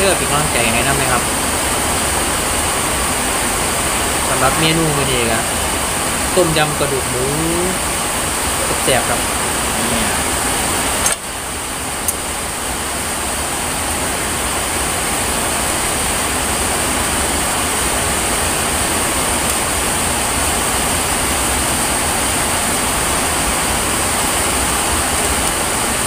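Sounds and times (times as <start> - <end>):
heavy rain falling: 0.0 - 26.0
small click: 11.0 - 11.2.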